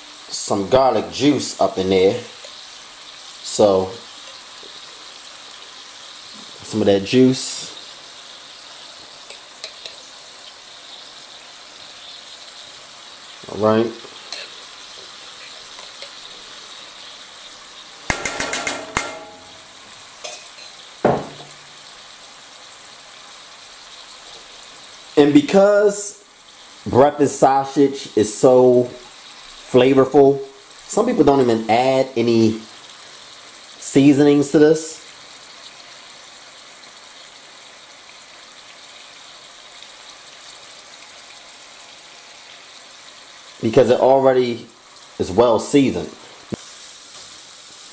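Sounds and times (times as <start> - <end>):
sausage sizzling in skillet: 0.0 - 47.9
container knock: 18.1 - 19.6, 21.0 - 21.6.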